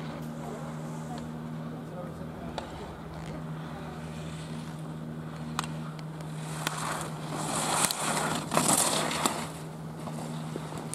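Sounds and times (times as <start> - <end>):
steady low hum: 0.0 - 10.9
skis scraping on snow: 2.5 - 10.9.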